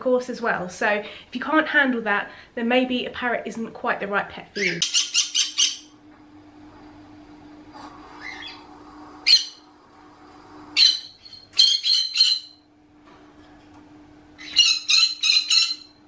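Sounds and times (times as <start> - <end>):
parrot screeching: 4.6 - 5.9, 8.2 - 8.6, 9.2 - 9.6, 10.8 - 12.6, 14.4 - 16.0.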